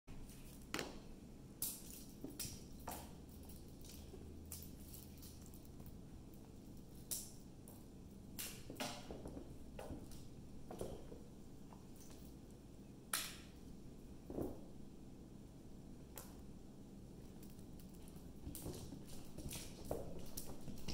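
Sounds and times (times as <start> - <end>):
faint low hum: 0.1 - 20.9
cat paws tapping on wood floor: 17.3 - 20.9.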